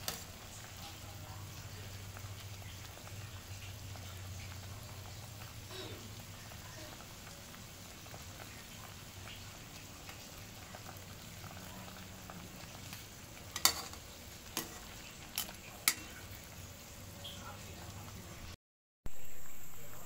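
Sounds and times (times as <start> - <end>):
pot boiling and bubbling: 0.0 - 20.0
ladle stirring pot: 12.6 - 16.6.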